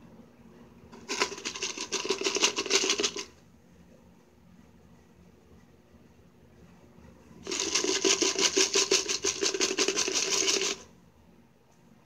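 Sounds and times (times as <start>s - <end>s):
chips rattling in shaken can: 1.0s - 3.3s, 7.4s - 10.9s.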